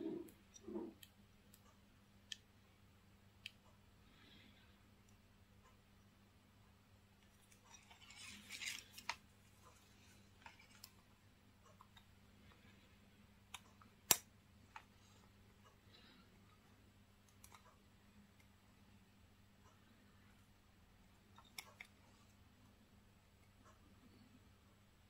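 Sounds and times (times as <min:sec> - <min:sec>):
watch strap rustling: 0:07.3 - 0:11.0.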